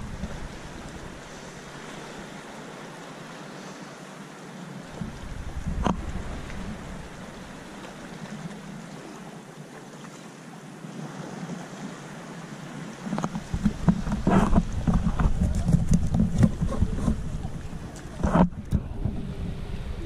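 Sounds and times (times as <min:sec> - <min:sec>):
wind buffeting microphone: 0:00.0 - 0:02.4, 0:04.8 - 0:08.7, 0:13.1 - 0:20.0
water sloshing and splashing: 0:00.0 - 0:20.0.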